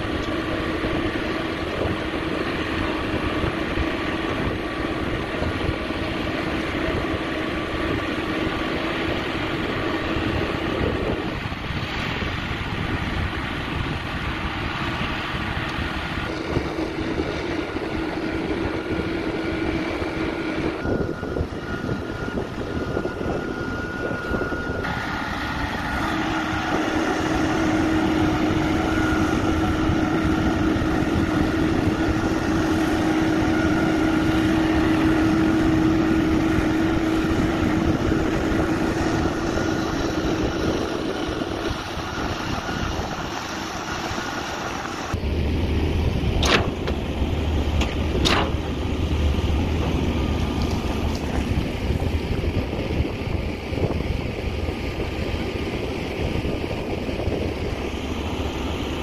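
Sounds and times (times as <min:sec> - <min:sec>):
concrete pump mechanical drone: 0:00.0 - 0:59.0.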